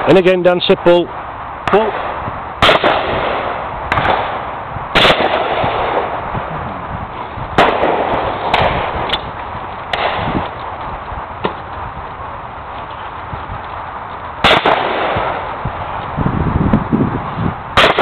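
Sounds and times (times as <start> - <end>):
shotgun shots: 1.6 - 6.2, 7.6 - 9.2, 9.9 - 10.4, 14.4 - 15.5, 17.8 - 18.0.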